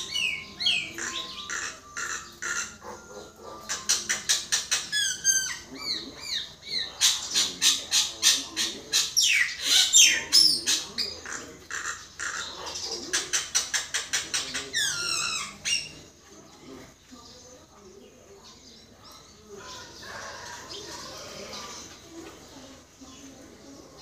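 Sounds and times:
bird chattering and whistling: 0:00.0 - 0:16.2.

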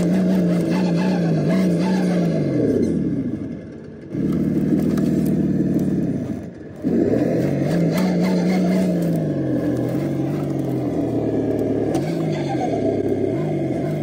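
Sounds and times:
simulated truck engine from speaker: 0:00.0 - 0:14.0.

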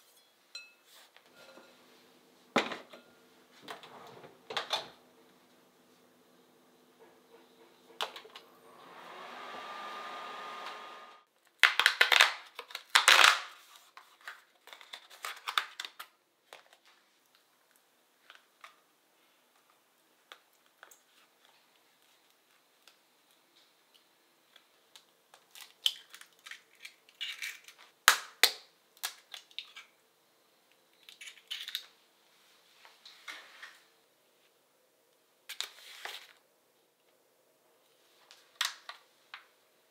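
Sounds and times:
microwave oven humming: 0:01.4 - 0:11.2.

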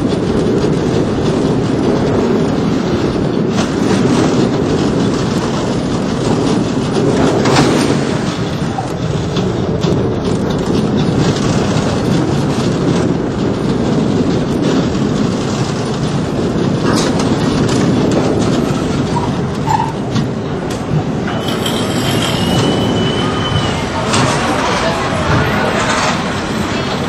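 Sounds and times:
roller coaster car rumbling: 0:00.0 - 0:27.0
thin high squeal: 0:21.3 - 0:23.9.

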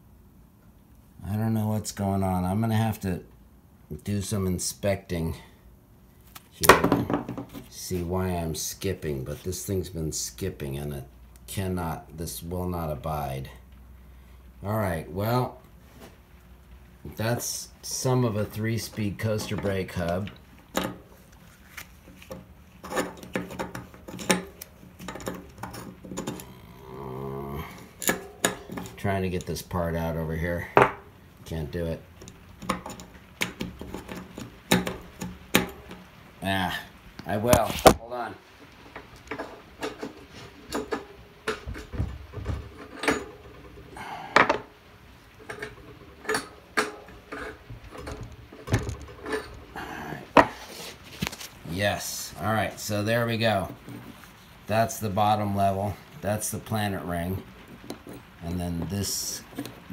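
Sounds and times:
metal clicks knocks and scrapes: 0:17.9 - 0:26.6, 0:32.2 - 0:36.2, 0:38.6 - 0:44.7, 0:45.3 - 0:51.6, 0:57.4 - 0:59.9
metal parts clinking: 0:22.3 - 0:26.6, 0:39.3 - 0:44.6, 0:45.3 - 0:50.4.

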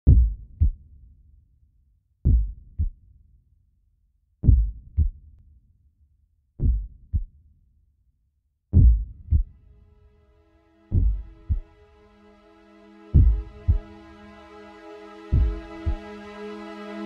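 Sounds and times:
slow heartbeat thumps: 0:00.0 - 0:00.8, 0:02.3 - 0:03.0, 0:04.4 - 0:05.2, 0:06.6 - 0:07.3, 0:08.8 - 0:09.6, 0:10.9 - 0:11.7, 0:13.1 - 0:13.9, 0:15.3 - 0:16.0.

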